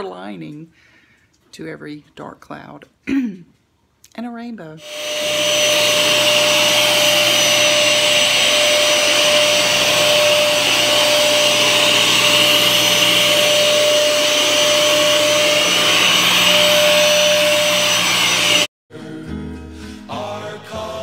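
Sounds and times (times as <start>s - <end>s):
carpet cleaner suction motor whine: 4.8s - 18.7s.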